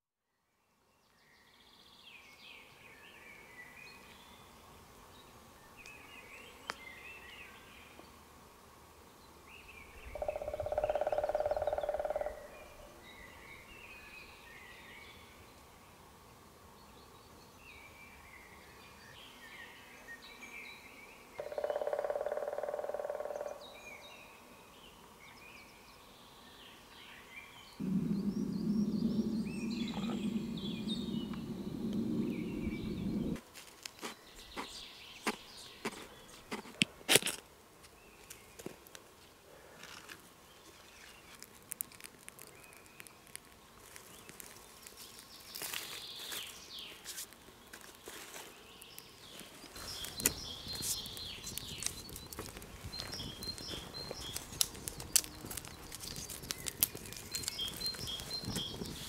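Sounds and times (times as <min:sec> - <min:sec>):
birds singing and chirping: 0:09.7 - 0:14.8, 0:27.7 - 0:33.4, 0:48.8 - 0:59.0
steady tone: 0:27.8 - 0:33.4.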